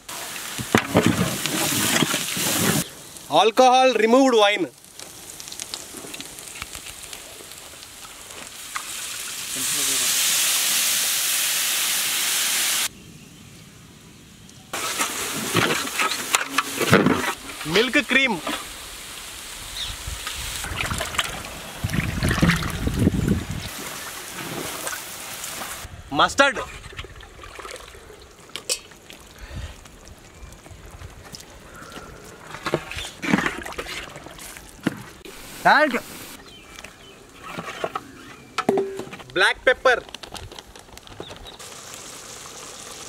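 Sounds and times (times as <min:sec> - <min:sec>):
pot sizzling: 0:00.0 - 0:12.9, 0:14.8 - 0:25.9, 0:34.2 - 0:37.6, 0:41.0 - 0:43.0
liquid hissing in hot oil: 0:04.8 - 0:12.9, 0:41.6 - 0:43.0.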